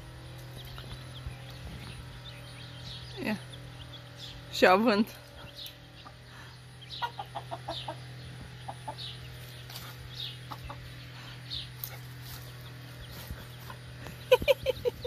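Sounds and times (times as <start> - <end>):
hen clucking: 5.3 - 15.0.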